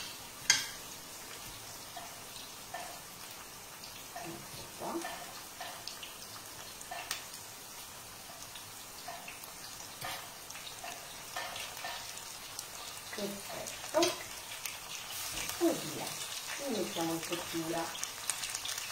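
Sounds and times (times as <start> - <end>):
sauce sizzling in a pan: 0.0 - 18.9
small crackling ticks: 6.8 - 7.3.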